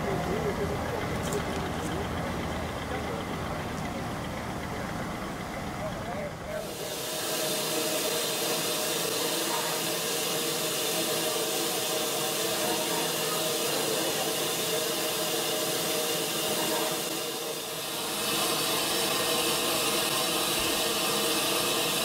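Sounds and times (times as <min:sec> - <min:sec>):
steady hiss: 0:06.6 - 0:22.0.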